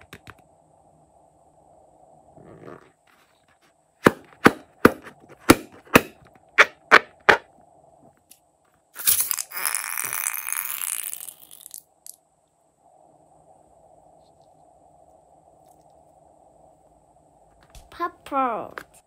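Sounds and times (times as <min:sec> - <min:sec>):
taps on a toy balloon: 0:04.0 - 0:07.4.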